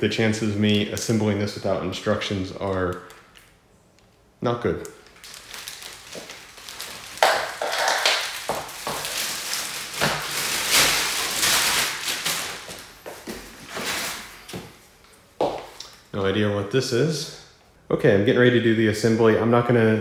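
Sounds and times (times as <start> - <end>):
packaging rustling and crinkling: 5.0 - 14.8.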